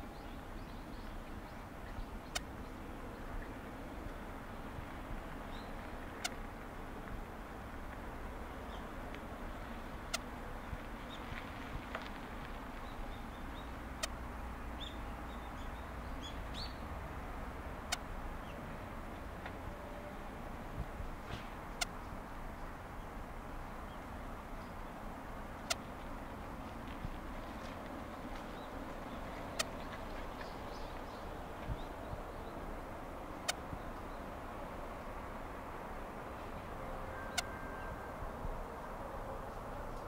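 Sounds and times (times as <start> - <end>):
small birds chirping: 0.0 - 4.7, 14.8 - 16.9, 27.6 - 32.7
outdoor background hiss: 0.0 - 40.0
birds chirping: 28.0 - 32.7.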